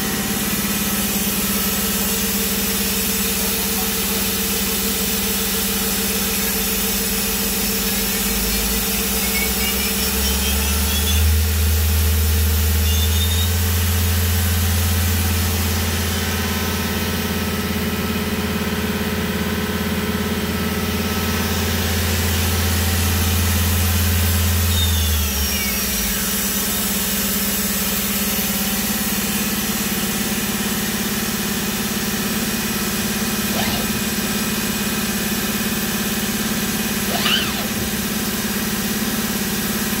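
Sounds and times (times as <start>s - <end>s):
steady machine hum: 0.0s - 29.7s, 30.6s - 40.0s
spindle whine: 33.4s - 34.4s, 37.0s - 38.6s.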